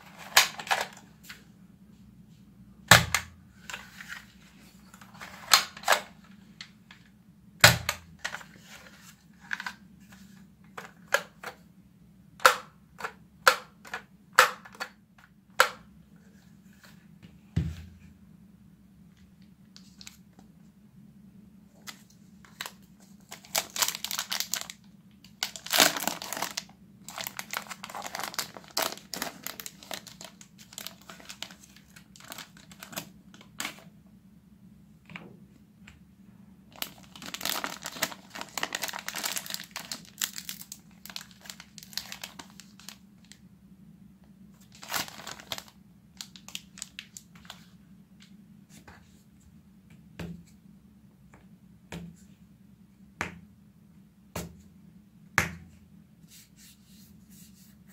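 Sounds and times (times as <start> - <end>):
plastic wrapper crinkling: 21.8 - 33.8, 36.7 - 43.4, 44.6 - 47.7.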